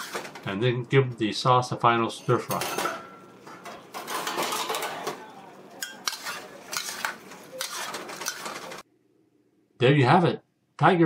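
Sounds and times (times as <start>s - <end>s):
metal utensil scraping a wok: 0.0s - 0.4s, 5.8s - 8.8s.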